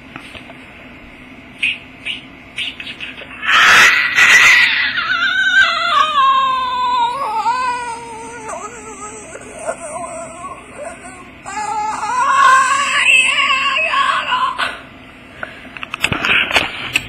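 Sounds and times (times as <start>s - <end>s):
cat hissing: 1.6s - 5.7s
cat yowling: 3.4s - 13.8s.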